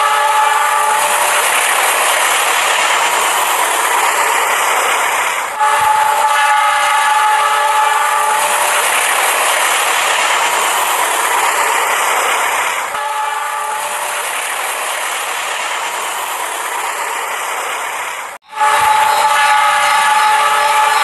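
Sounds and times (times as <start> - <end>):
toy train motor whirring and rattling: 0.0 - 12.8, 18.6 - 21.0.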